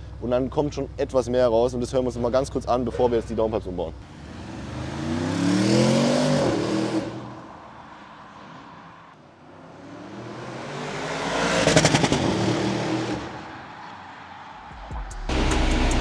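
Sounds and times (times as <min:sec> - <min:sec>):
car engine accelerating past: 0:04.1 - 0:07.5, 0:09.5 - 0:13.5.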